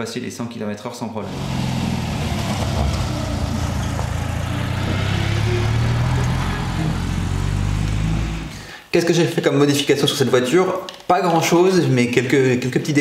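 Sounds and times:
van engine running: 1.2s - 8.7s.

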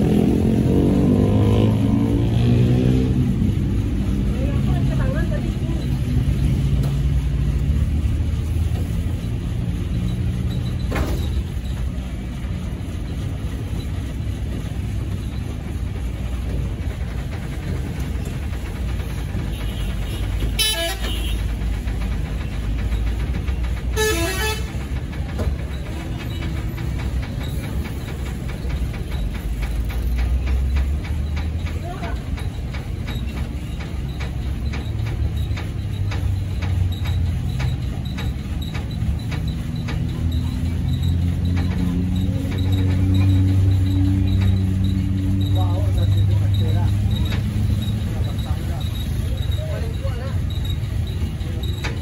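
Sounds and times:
diesel truck engine idling: 0.0s - 52.0s
vehicle horn toots: 19.6s - 21.4s, 24.0s - 24.7s.

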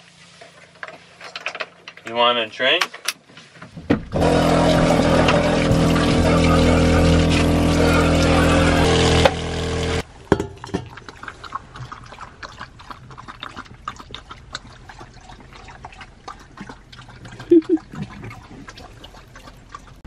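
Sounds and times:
dog lapping water from metal bowl: 4.2s - 8.9s, 10.4s - 20.0s
steady hum: 4.2s - 10.0s.

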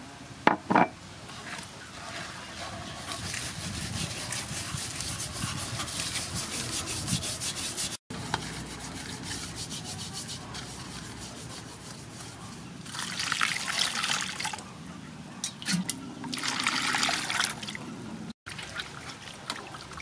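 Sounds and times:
hands scrubbing salt on fish: 2.0s - 13.2s.

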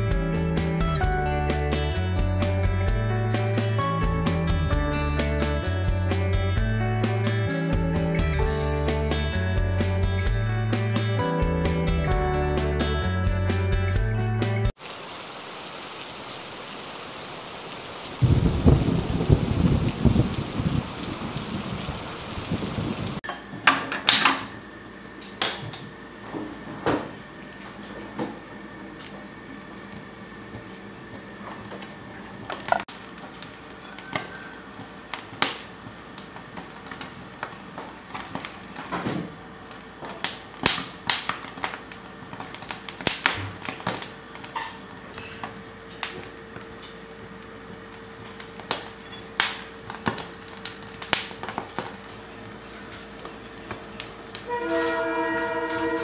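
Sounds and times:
gas flame hissing: 14.8s - 23.2s
corn kernels popping and crackling: 32.5s - 39.0s, 39.6s - 45.3s, 47.8s - 54.5s
horn-like tone: 54.4s - 56.0s.

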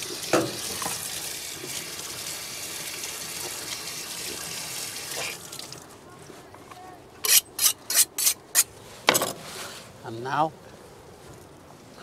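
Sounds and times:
tap water splashing into sink: 0.0s - 1.8s.

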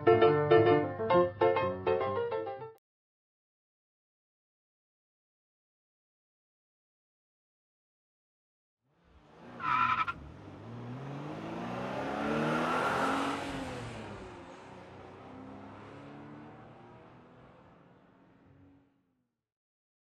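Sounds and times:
race car engine passing: 9.2s - 18.9s
tire squeal: 9.5s - 10.3s.

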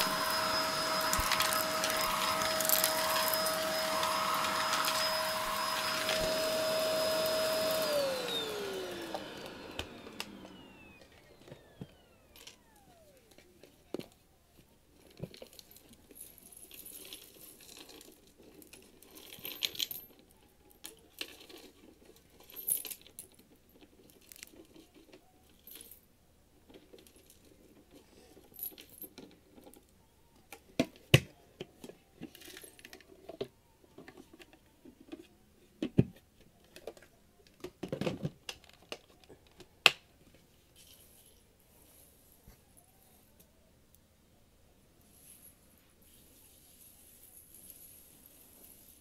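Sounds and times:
debris rattling onto rug: 0.0s - 10.0s.

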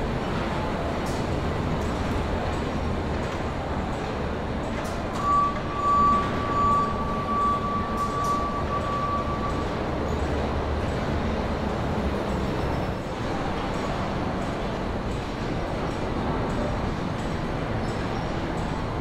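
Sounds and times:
machinery hum: 0.0s - 19.0s
steady single-pitch tone: 5.2s - 10.0s.

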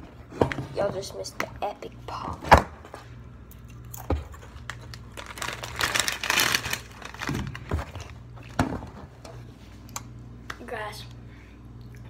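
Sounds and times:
crinkling and rustling: 4.0s - 9.4s.

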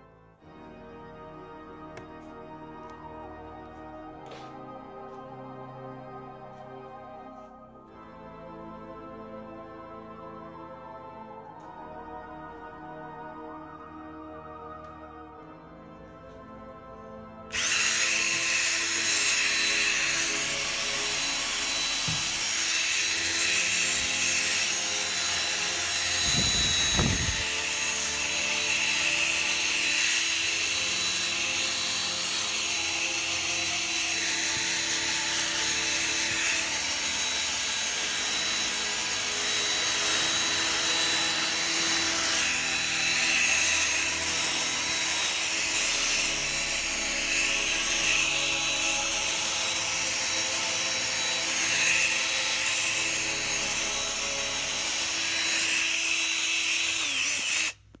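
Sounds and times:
power drill motor whine: 17.5s - 58.0s.

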